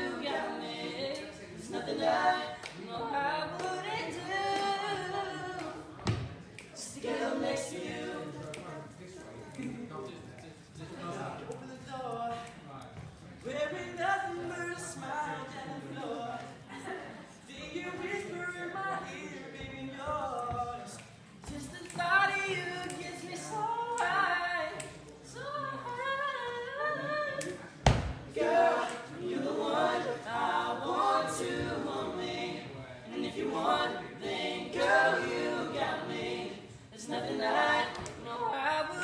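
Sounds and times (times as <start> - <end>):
male voices singing in harmony: 0.0 - 6.2, 28.3 - 39.0.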